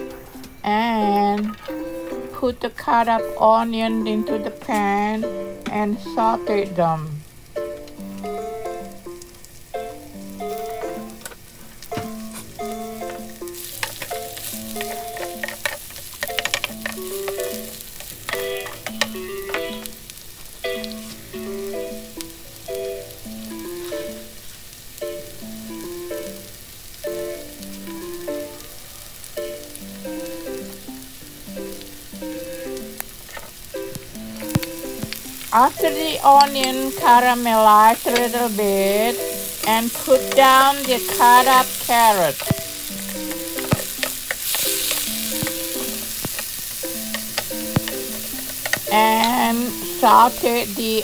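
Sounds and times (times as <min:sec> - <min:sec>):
onion sizzling in hot oil: 0:00.0 - 0:51.0
simple repeating melody: 0:46.8 - 0:51.0.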